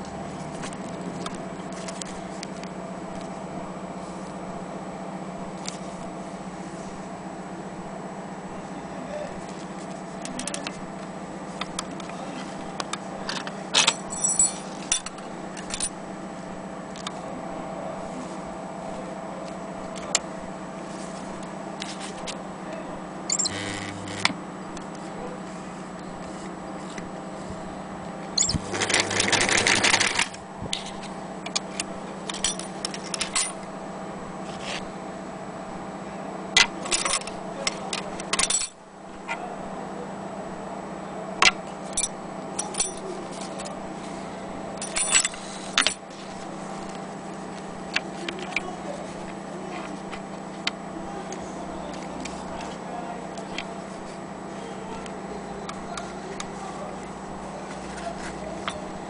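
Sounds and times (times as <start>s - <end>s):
steady low hum: 0.0s - 59.0s
metal buckle clinking: 13.8s - 15.9s, 38.3s - 38.8s, 41.9s - 43.0s, 44.8s - 46.0s
sewing machine stitching: 28.4s - 30.4s.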